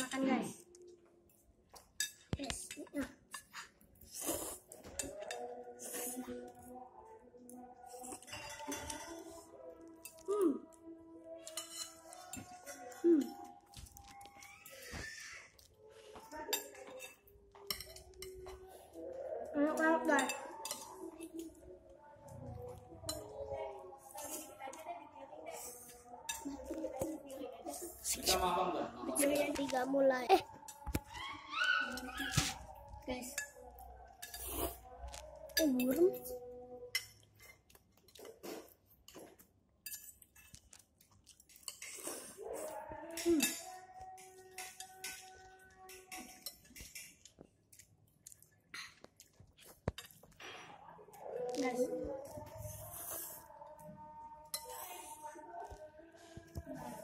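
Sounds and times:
faint chewing: 0.4s - 28.5s, 29.1s - 57.0s
cutlery clinking on plates: 8.0s - 9.4s, 11.4s - 13.9s, 16.5s - 18.7s, 43.1s - 47.6s.

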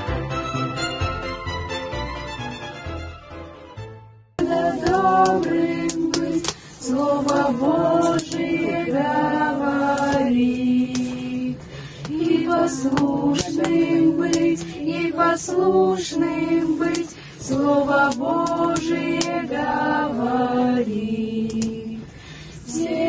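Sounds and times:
children singing a hymn: 4.4s - 22.0s.

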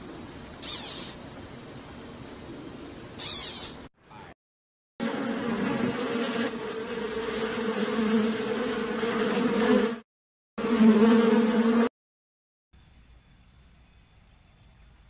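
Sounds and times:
wasp buzzing: 0.6s - 1.2s, 3.2s - 3.8s, 5.0s - 10.0s, 10.6s - 11.9s.

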